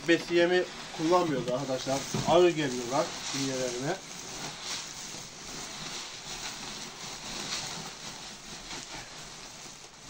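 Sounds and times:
plastic sack rustling: 0.0 - 10.0.

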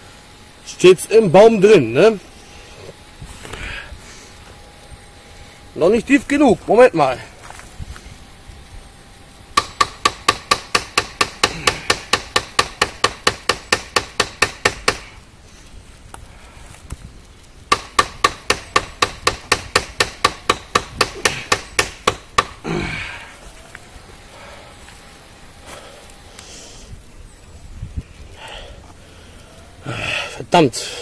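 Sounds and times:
person grunting: 11.5 - 12.0, 22.6 - 23.4, 29.8 - 31.0.

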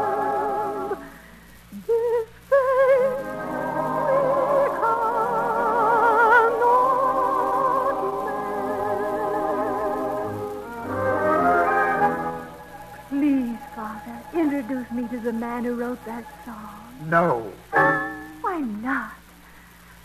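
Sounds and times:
operetta singing with vibrato: 0.0 - 19.8
orchestral accompaniment: 7.0 - 18.5.

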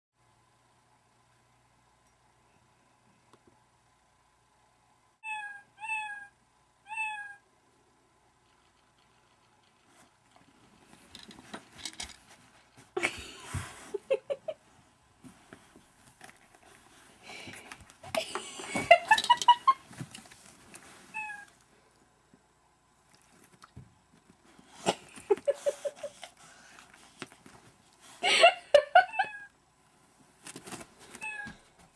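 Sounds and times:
rustling noise: 8.5 - 21.6, 30.0 - 31.9.

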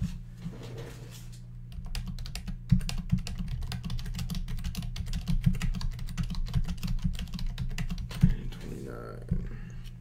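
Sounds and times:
computer keyboard typing: 1.7 - 8.6.

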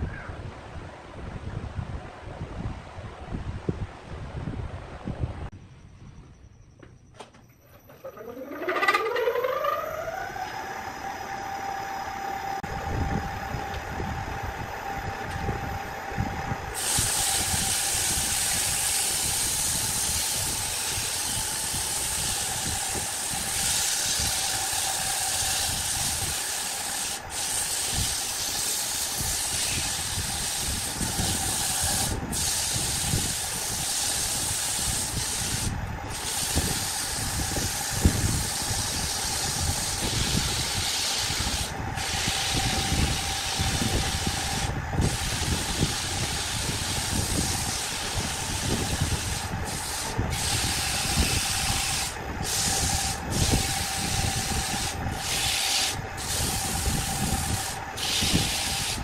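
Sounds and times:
wood lathe humming: 7.7 - 59.0
sandpaper sanding hiss: 16.8 - 59.0.

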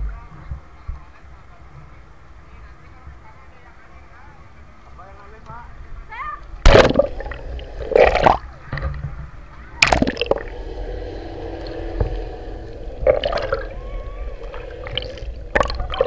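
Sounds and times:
steady low hum: 5.2 - 16.0
water splashes: 6.6 - 9.0, 9.8 - 16.0
muffled underwater sloshing: 6.6 - 16.0.

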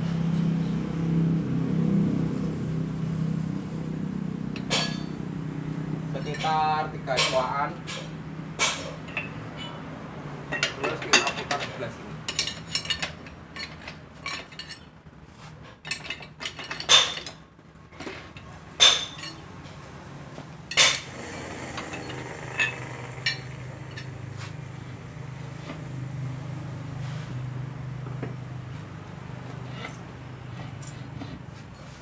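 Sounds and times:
metal clinks and knocks of wrench: 10.5 - 14.9, 15.8 - 17.4, 18.8 - 19.4
steady low hum: 20.7 - 30.5.

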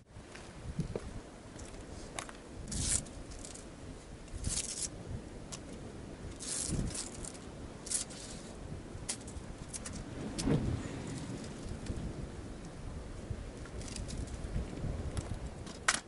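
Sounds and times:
landing net rustling and scraping: 1.6 - 3.7, 4.4 - 5.0, 6.3 - 11.9.

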